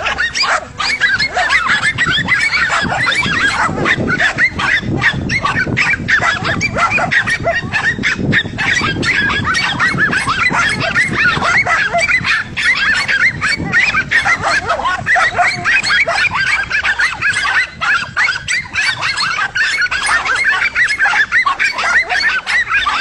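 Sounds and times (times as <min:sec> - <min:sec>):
dogs barking and yelping: 0:00.0 - 0:23.0.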